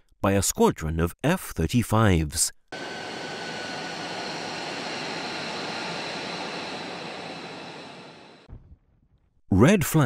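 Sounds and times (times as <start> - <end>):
jet engine running: 2.7 - 8.5.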